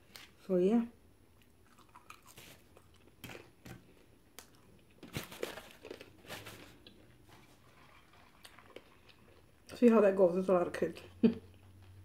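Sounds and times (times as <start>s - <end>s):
paper wrapper crinkling: 5.0s - 8.8s.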